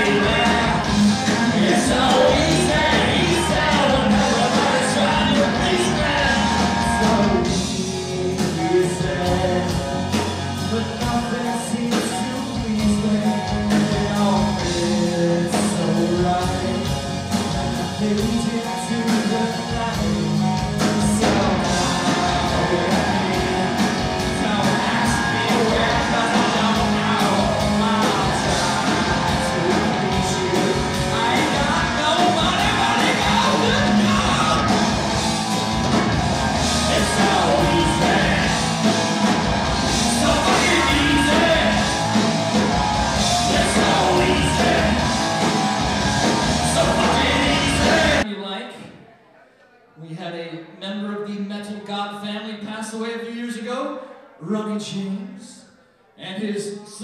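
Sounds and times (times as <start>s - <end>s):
man singing: 0.0s - 34.8s, 36.7s - 38.8s, 40.0s - 42.2s, 43.3s - 45.2s, 46.6s - 48.6s
bass guitar: 0.0s - 48.2s
distorted electric guitar: 0.0s - 48.2s
drum kit: 0.0s - 48.2s.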